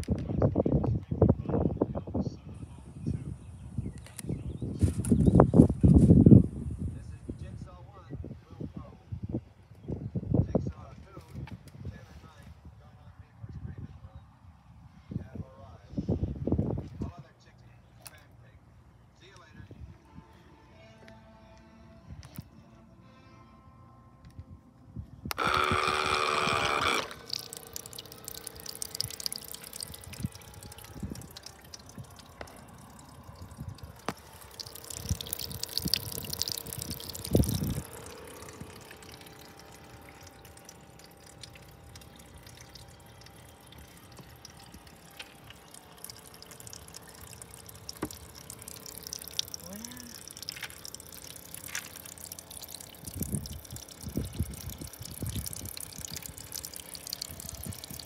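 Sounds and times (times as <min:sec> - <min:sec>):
electric pump whine: 0:25.2 - 0:58.0
water trickling and dripping: 0:25.3 - 0:58.0.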